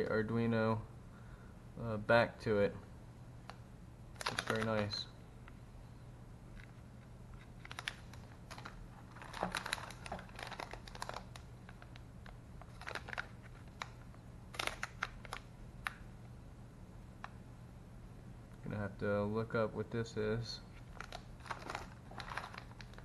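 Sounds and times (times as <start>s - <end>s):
plastic bag crinkling: 4.2s - 4.9s, 7.4s - 15.5s, 20.8s - 23.0s.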